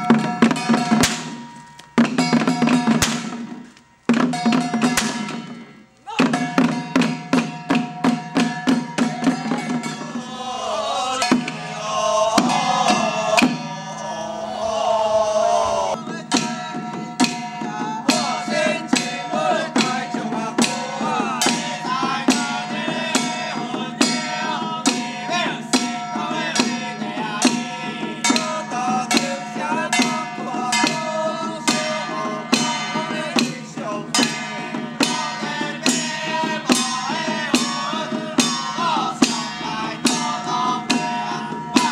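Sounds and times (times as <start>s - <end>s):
drums beaten with sticks: 0.0s - 41.9s
person chanting: 9.1s - 34.4s.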